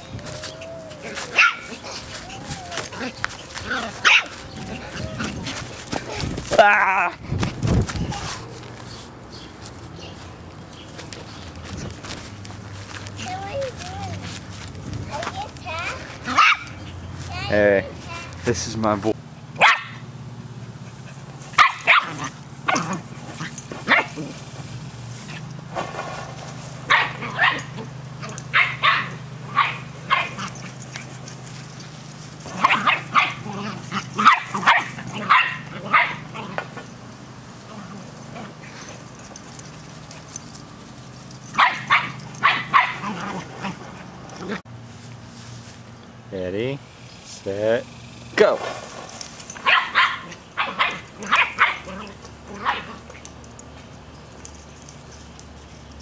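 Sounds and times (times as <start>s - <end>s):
puppy barking in sharp yaps: 1.3s - 1.7s, 4.0s - 4.3s, 16.3s - 16.8s, 19.6s - 20.0s, 21.6s - 23.0s, 26.9s - 27.7s, 28.5s - 30.5s, 32.6s - 36.3s, 41.5s - 43.1s, 49.6s - 52.0s.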